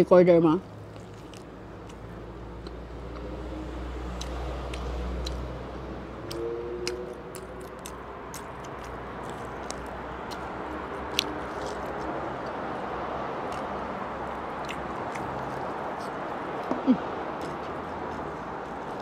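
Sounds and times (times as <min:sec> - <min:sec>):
person chewing food: 0:00.8 - 0:19.0
wet mouth clicks and smacks: 0:04.1 - 0:05.5, 0:13.4 - 0:13.8.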